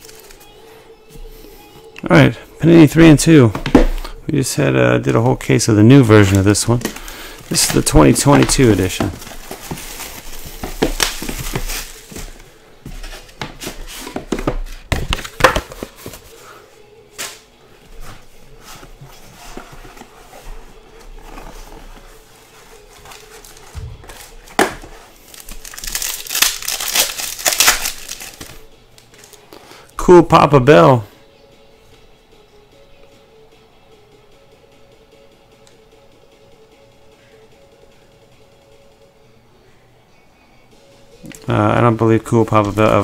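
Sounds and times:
packaging crinkling and tearing: 0:00.0 - 0:00.4, 0:06.6 - 0:12.4, 0:25.2 - 0:28.6.

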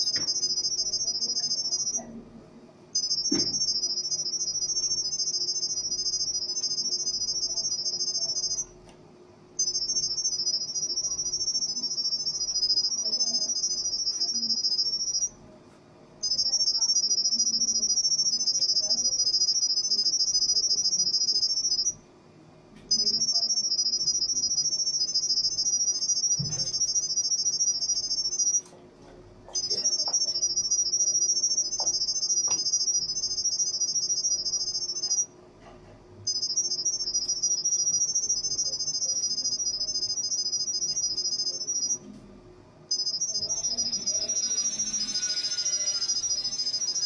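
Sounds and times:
high warbling chirp tones: 0:43.2 - 0:47.0.

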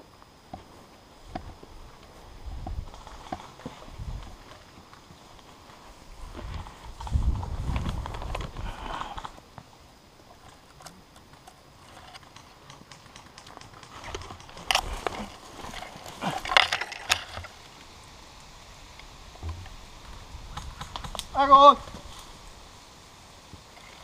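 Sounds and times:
branches rustling and crackling: 0:00.0 - 0:24.0
twigs snapping: 0:20.5 - 0:21.3.

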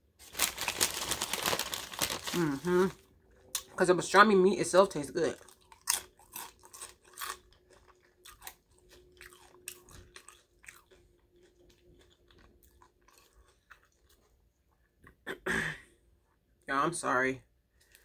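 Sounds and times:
person chewing food: 0:05.4 - 0:15.1, 0:17.7 - 0:18.0.

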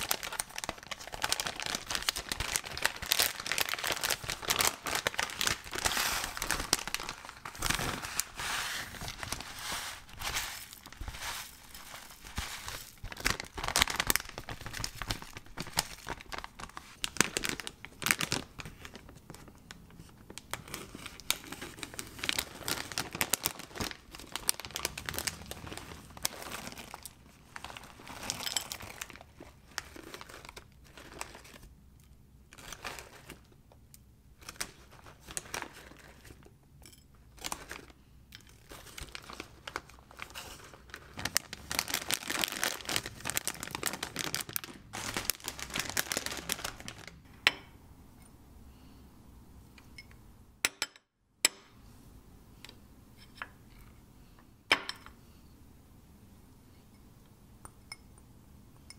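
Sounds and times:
bag crinkling: 0:00.0 - 0:19.6, 0:20.3 - 0:31.7, 0:34.4 - 0:36.5, 0:37.4 - 0:38.0, 0:38.6 - 0:47.2
granola pouring into bowl: 0:03.8 - 0:13.6.

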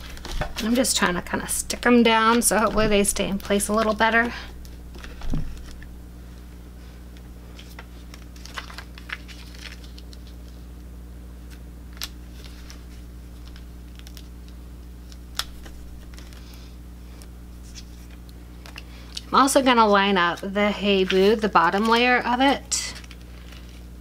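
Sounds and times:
vinyl sheets clicking and crinkling: 0:00.0 - 0:06.5, 0:07.1 - 0:10.8, 0:11.4 - 0:24.0
low hum: 0:00.0 - 0:24.0.

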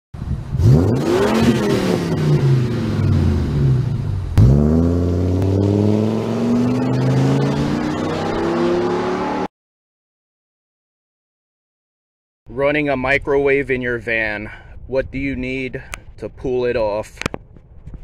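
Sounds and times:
van engine accelerating: 0:00.5 - 0:09.5.

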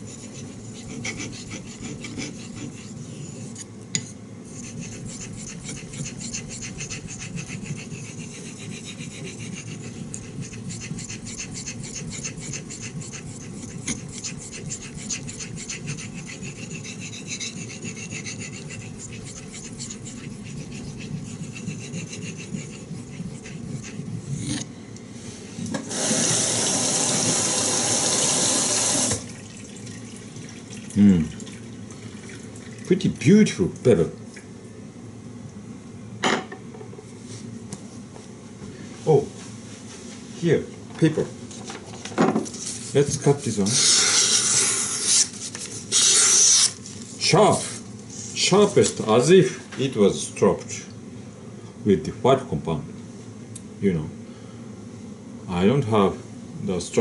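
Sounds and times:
knife scraping on wet stone: 0:00.0 - 0:24.7
tap running: 0:28.8 - 0:30.8.

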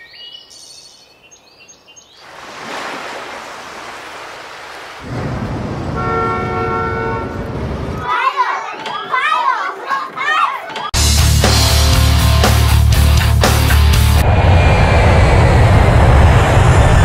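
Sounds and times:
low traffic rumble: 0:05.0 - 0:08.1, 0:14.2 - 0:17.0
car horn: 0:05.9 - 0:07.5.

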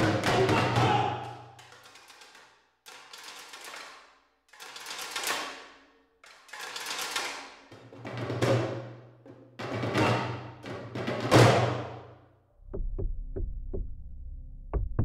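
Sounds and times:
metal djembe rolls: 0:07.7 - 0:12.0.

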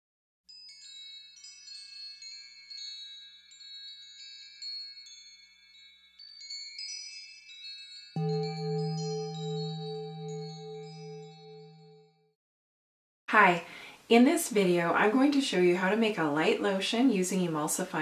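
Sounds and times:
wind chimes tinkling: 0:00.5 - 0:11.1
low pulsing humming tone: 0:08.2 - 0:11.7.

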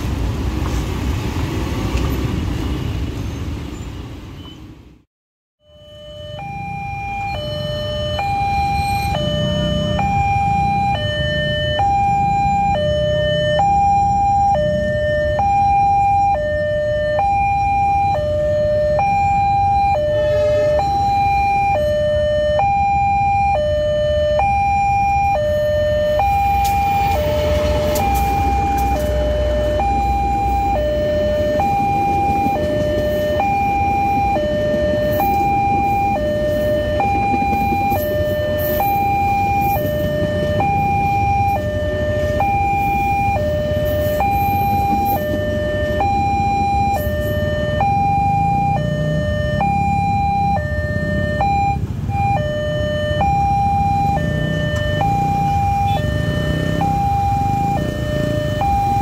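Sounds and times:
two-tone crossing alarm: 0:05.6 - 0:59.0
train rumbling past: 0:26.5 - 0:40.9.

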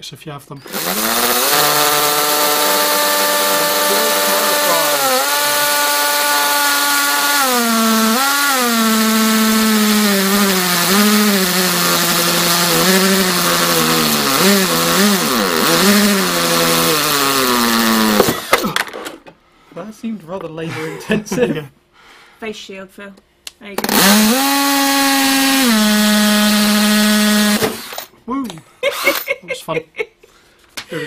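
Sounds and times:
cordless drill boring plastic: 0:00.6 - 0:18.6, 0:23.8 - 0:28.1.

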